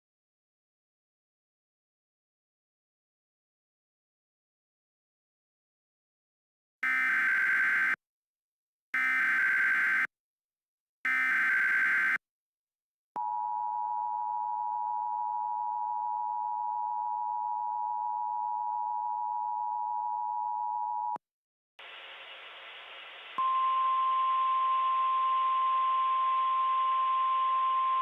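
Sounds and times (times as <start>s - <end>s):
two-tone attention signal: 23.4s - 28.0s.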